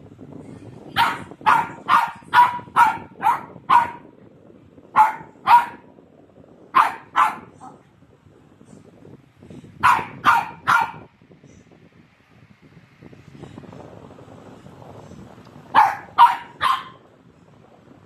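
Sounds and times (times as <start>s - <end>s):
puppy barking: 1.0s - 4.1s, 5.0s - 5.9s, 6.8s - 7.8s, 9.8s - 11.1s, 15.7s - 17.0s.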